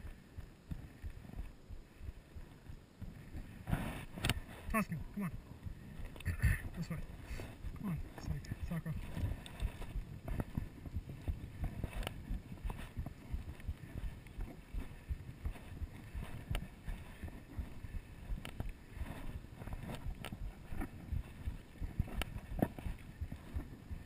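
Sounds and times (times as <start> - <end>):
footsteps on rocky dirt trail: 0.0 - 24.0
wind on microphone: 0.0 - 24.0
stones clicking underfoot: 5.6 - 24.0.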